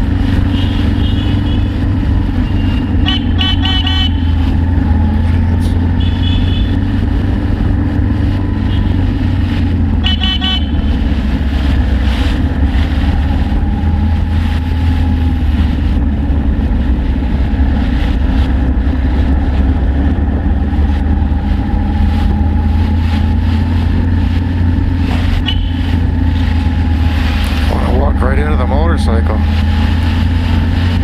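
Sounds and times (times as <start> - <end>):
motorcycle engine running: 0.0 - 31.0
short horn toot: 2.6 - 4.4.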